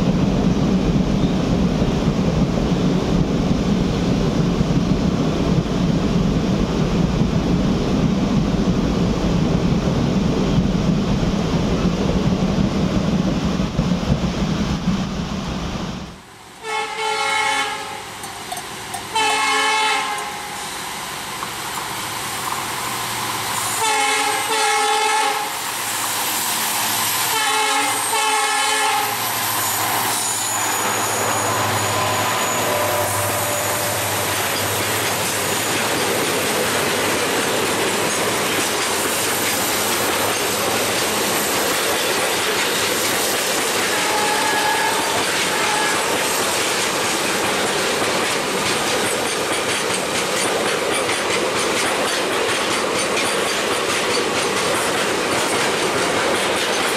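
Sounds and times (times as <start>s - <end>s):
freight train rumbling past: 0.0s - 56.9s
train horn blasts: 16.6s - 18.1s, 19.1s - 20.6s, 23.7s - 25.5s, 27.3s - 29.2s, 30.8s - 34.3s, 43.8s - 46.2s
clatter of train wheels: 18.1s - 28.4s, 29.0s - 56.9s.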